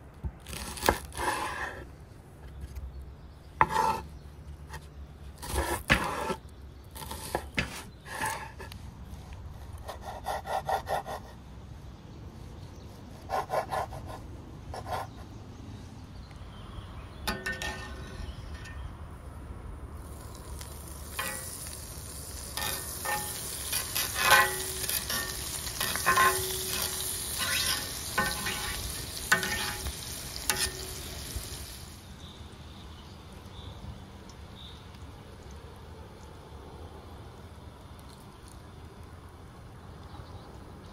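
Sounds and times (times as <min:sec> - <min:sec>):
spatula scraping a pan: 0:00.6 - 0:01.9, 0:03.6 - 0:04.1, 0:05.4 - 0:06.4, 0:07.0 - 0:08.8, 0:17.3 - 0:18.8, 0:20.9 - 0:31.3
butter sizzling in a pan: 0:20.1 - 0:32.0.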